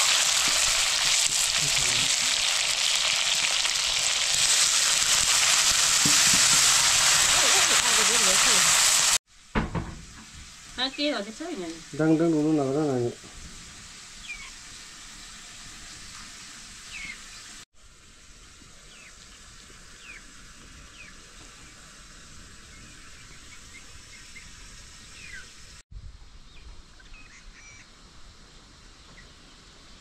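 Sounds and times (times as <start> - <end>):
bird chirps: 14.2 - 14.6.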